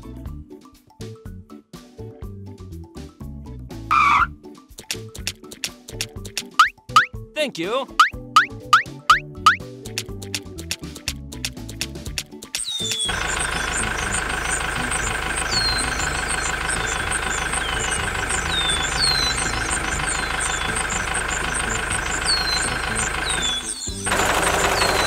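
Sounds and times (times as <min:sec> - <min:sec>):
high falling chirps: 0:03.9 - 0:04.3, 0:06.4 - 0:07.1, 0:07.9 - 0:09.6, 0:12.6 - 0:25.0
small engine idling: 0:12.7 - 0:25.0.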